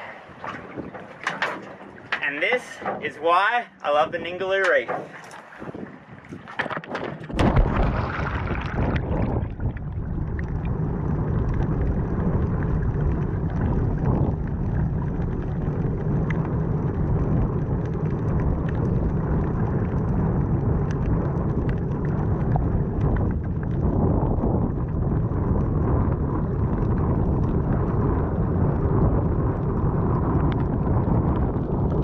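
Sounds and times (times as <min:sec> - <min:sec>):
faint crackles: 0:00.0 - 0:32.0
muffled underwater rumble: 0:00.0 - 0:32.0
splash into water: 0:06.4 - 0:09.7.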